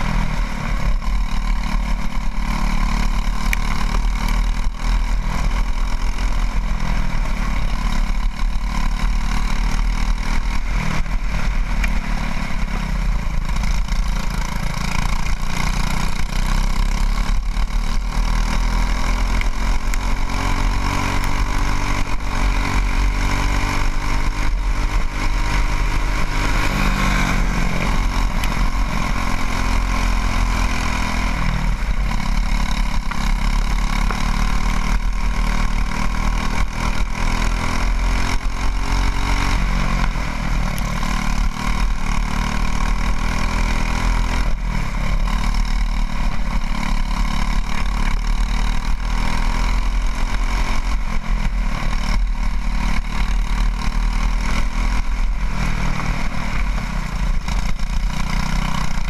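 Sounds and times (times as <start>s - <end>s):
kart engine revving high: 0.0s - 59.0s.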